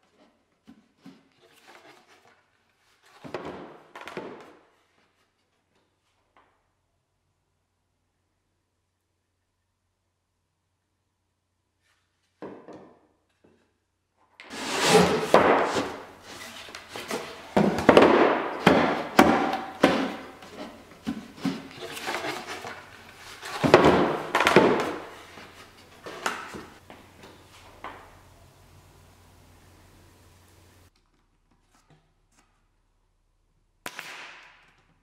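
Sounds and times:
wooden parts knocking: 0:15.3 - 0:28.3.

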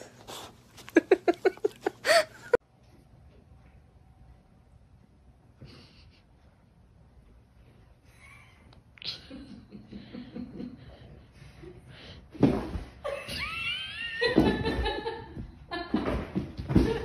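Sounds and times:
person laughing: 0:00.8 - 0:02.6.

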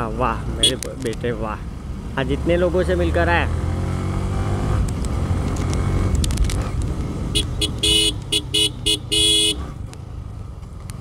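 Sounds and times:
horn beeping: 0:07.4 - 0:09.7.

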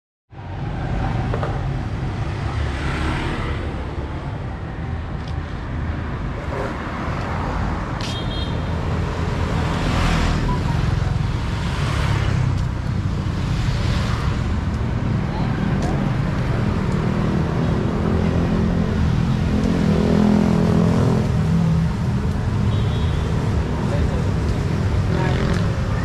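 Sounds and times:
motor vehicles passing: 0:00.4 - 0:26.0
short high-pitched beep: 0:10.4 - 0:11.0.

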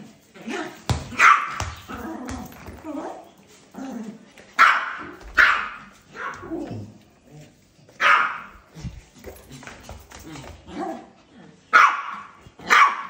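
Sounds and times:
small dog barking: 0:01.1 - 0:01.6, 0:04.6 - 0:06.5, 0:08.0 - 0:08.5, 0:11.7 - 0:13.0.

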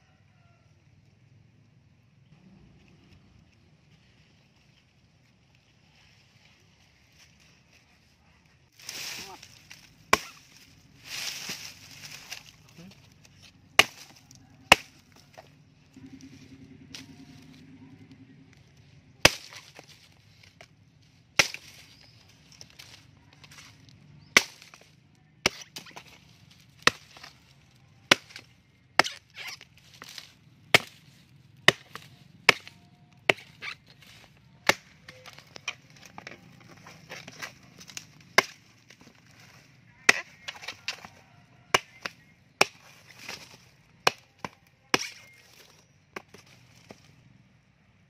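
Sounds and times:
axe chopping stalks: 0:08.8 - 0:15.5, 0:19.2 - 0:20.7, 0:21.3 - 0:47.1.

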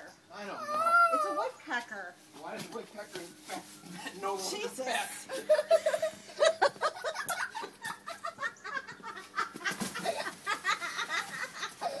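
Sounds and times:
people laughing: 0:04.9 - 0:12.0.

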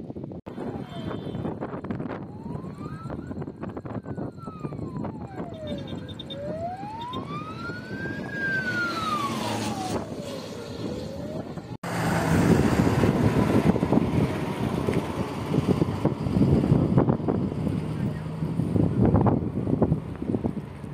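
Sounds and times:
emergency vehicle siren wailing: 0:00.5 - 0:20.8
steady rushing noise: 0:07.4 - 0:20.9.

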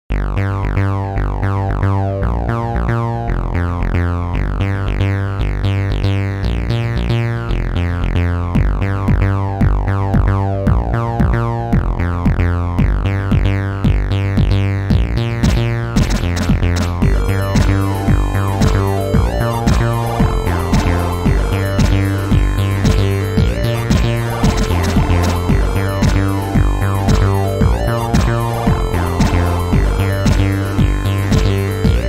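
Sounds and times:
steady synth bass: 0:00.1 - 0:32.0
chiptune synth lead: 0:15.4 - 0:32.0.

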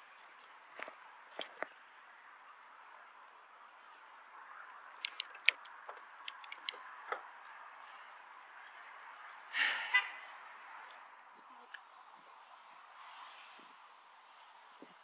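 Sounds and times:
wind and tyres hissing: 0:00.0 - 0:15.0
bicycle clicks and rattles: 0:02.9 - 0:07.5.

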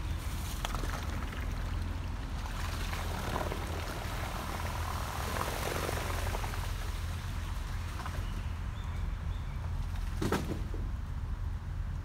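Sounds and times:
outboard motor running: 0:00.0 - 0:08.4.

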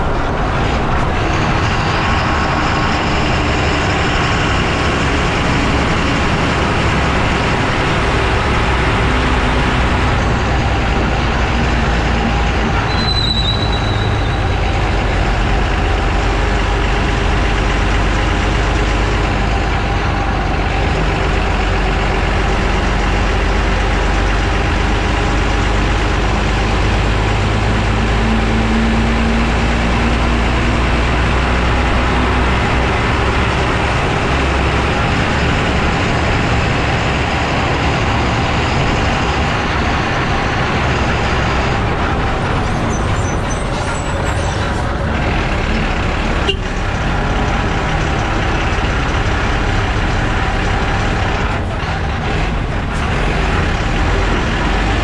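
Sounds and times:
lorry engine: 0:00.0 - 0:55.0
lorry tyres rumbling on road: 0:00.0 - 0:55.0
brief high squeal: 0:12.8 - 0:14.6.

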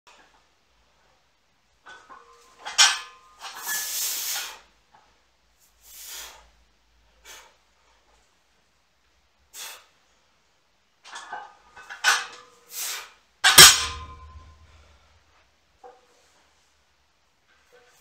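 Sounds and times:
barbell plates clanking: 0:01.9 - 0:03.7, 0:13.4 - 0:14.8.

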